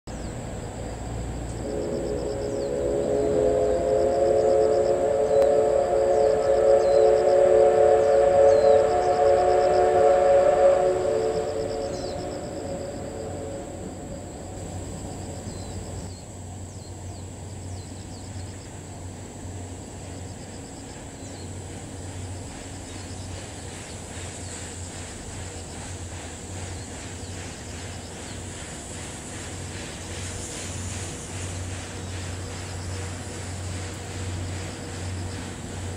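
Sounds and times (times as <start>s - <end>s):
steam locomotive whistle: 1.5s - 15.0s.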